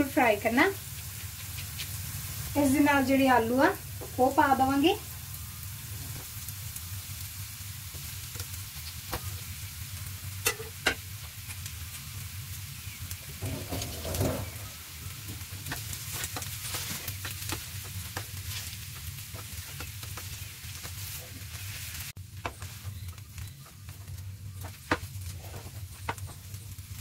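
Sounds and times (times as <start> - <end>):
onions sizzling in a pan: 0.0 - 27.0
spatula tapping and scraping: 15.6 - 21.5, 22.4 - 26.5.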